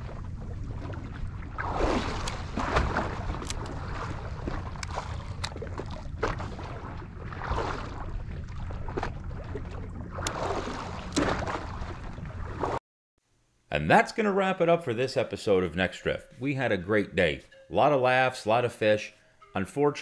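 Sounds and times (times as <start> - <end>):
low wind rumble on microphone: 0.0 - 12.8
small waves lapping against boat hull: 0.0 - 12.8.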